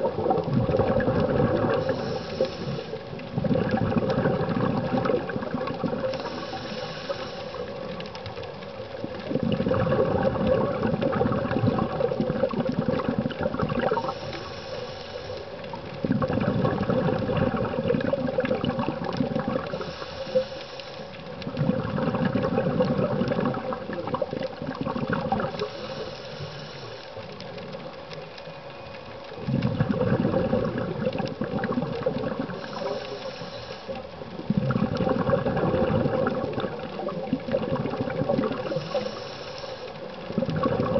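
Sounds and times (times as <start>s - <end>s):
exhaled bubbles rumbling: 0.0s - 40.9s
regulator inhale hiss: 1.6s - 3.3s, 5.3s - 9.2s, 13.8s - 16.0s, 19.6s - 21.5s, 25.5s - 27.8s, 32.4s - 34.3s, 38.4s - 40.4s.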